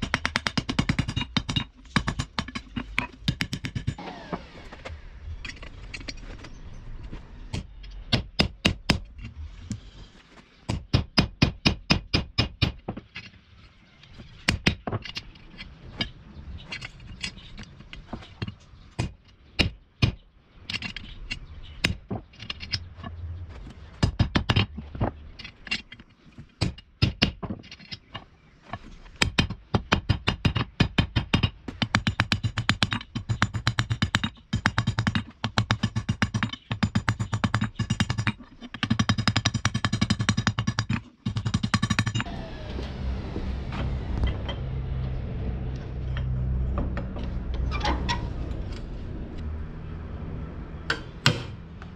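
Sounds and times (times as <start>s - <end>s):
hammer striking steel on anvil: 50.9s - 51.6s.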